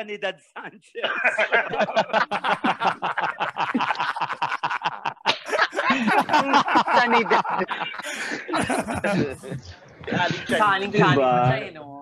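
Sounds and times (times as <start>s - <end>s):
hearty laughter: 1.0s - 10.6s.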